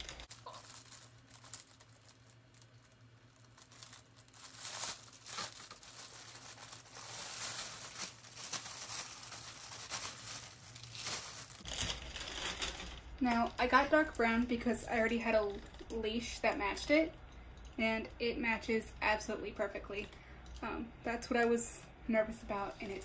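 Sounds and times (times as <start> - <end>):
plastic ripping: 0.0 - 14.2
plastic bag crinkling: 0.0 - 16.0.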